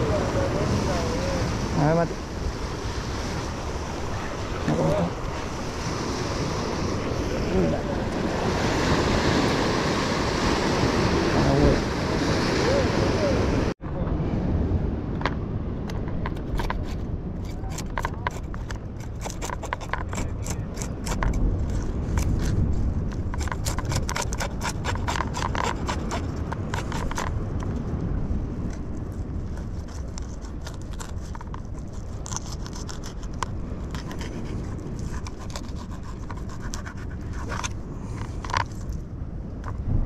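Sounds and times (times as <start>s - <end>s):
knife scraping fish on cutting board: 23.3s - 27.2s, 29.8s - 37.8s.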